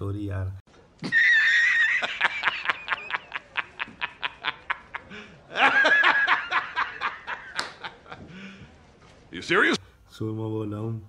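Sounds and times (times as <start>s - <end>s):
man laughing heartily: 1.0s - 8.6s.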